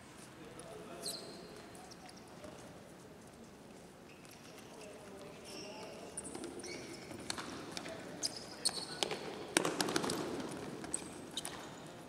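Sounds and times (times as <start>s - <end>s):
shoes squeaking on court: 1.0s - 2.6s, 4.1s - 12.0s.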